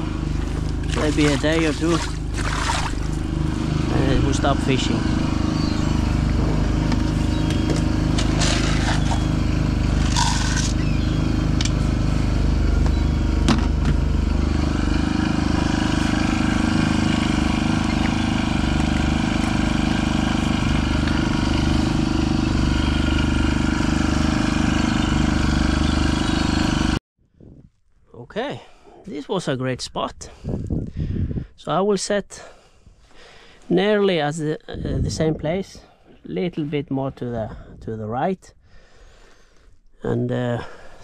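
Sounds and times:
boat engine throbbing: 0.0s - 27.0s.

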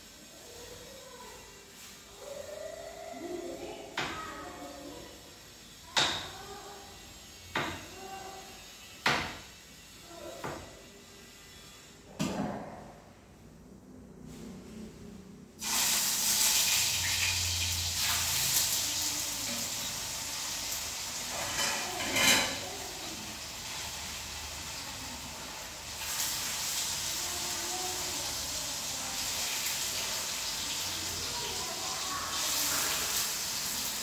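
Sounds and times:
food sizzling in hot oil: 0.0s - 11.8s, 15.6s - 34.0s.

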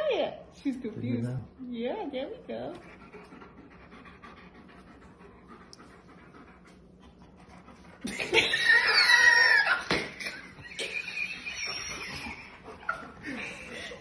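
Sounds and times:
baby whining cry: 8.5s - 10.0s.

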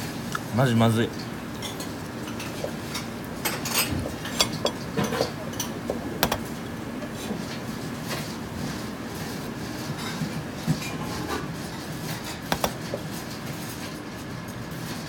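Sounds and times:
fingers tapping ceramic plate: 6.2s - 6.6s, 12.5s - 12.8s.

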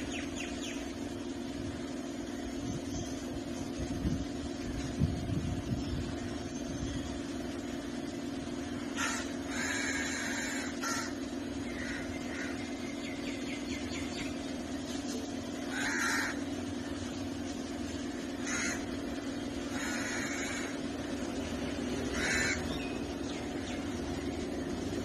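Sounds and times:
steady low hum: 0.0s - 25.0s
crows cawing: 8.8s - 12.9s, 15.6s - 17.0s, 18.1s - 21.3s, 22.0s - 22.9s.

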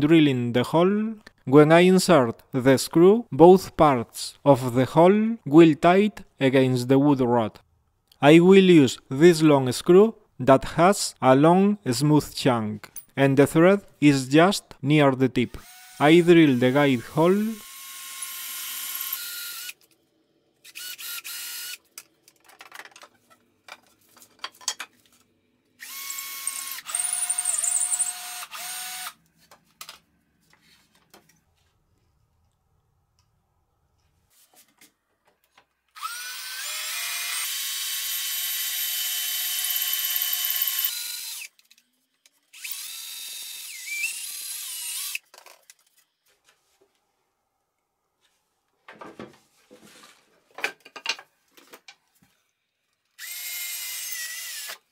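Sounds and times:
cordless drill drilling wood: 15.5s - 19.8s, 20.6s - 21.8s, 25.8s - 29.2s, 36.0s - 41.5s, 42.5s - 45.2s, 53.2s - 54.8s.

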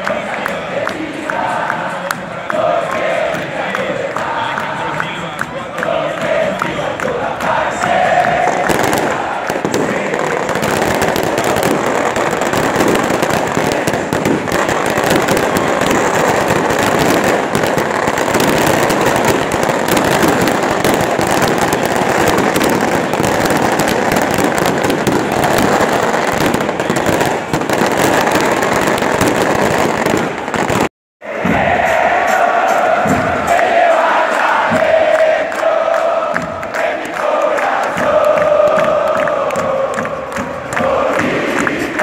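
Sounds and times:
firecrackers crackling: 0.0s - 30.9s.

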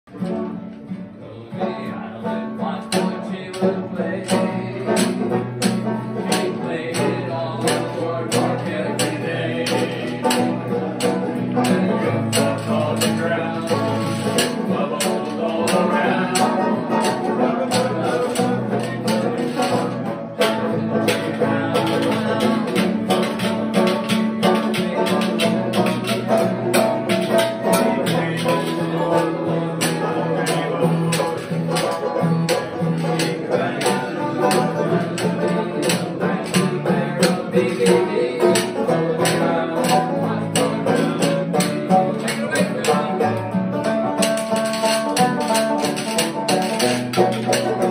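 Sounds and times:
acoustic guitar strumming: 0.1s - 47.9s
banjo picking: 0.1s - 47.9s
man singing: 0.1s - 47.9s.

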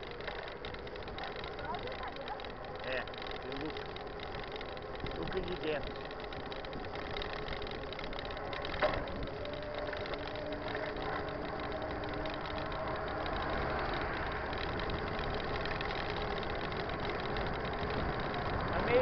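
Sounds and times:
road and wind noise: 0.0s - 19.0s
truck engine passing: 8.4s - 18.8s.

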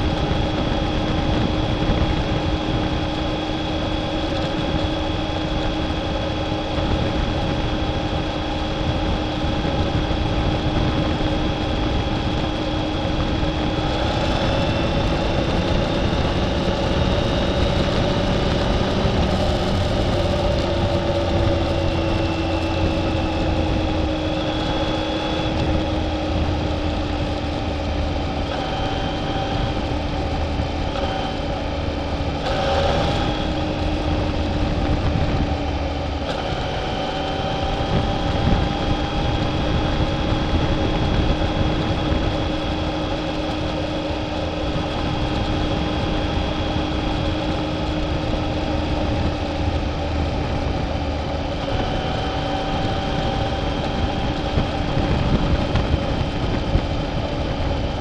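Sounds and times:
motorcycle engine cruising: 0.0s - 58.0s
wind and road noise: 0.0s - 58.0s.

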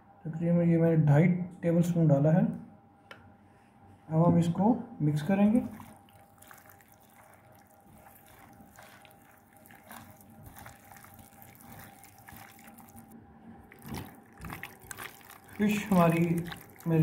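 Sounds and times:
wet squelching of kneading fish: 5.2s - 17.0s.

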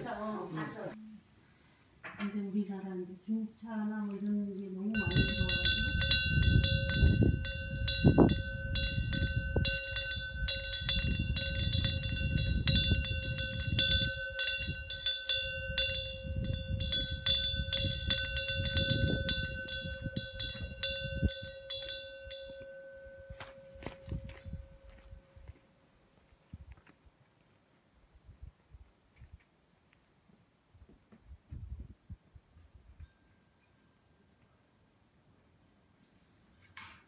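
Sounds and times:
wind rumble: 4.9s - 25.5s, 31.2s - 33.0s
wind bell ringing: 5.0s - 25.5s, 33.0s - 34.3s.

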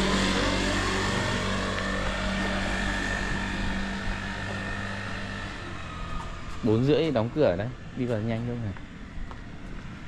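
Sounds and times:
vehicle engine hum: 0.0s - 10.0s.

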